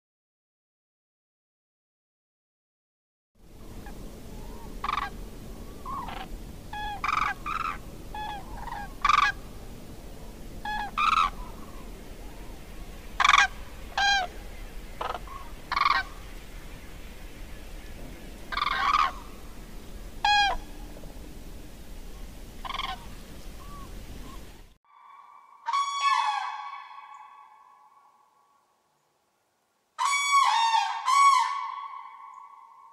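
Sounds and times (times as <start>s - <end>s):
low background rumble: 3.4s - 24.8s
cranes calling: 3.6s - 21.2s, 21.8s - 28.2s, 30.0s - 32.9s.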